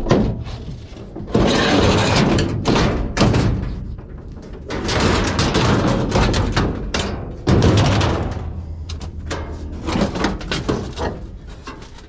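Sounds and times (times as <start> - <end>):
metal panels clattering and scraping: 0.0 - 12.0
loud metal bangs: 4.7 - 10.4.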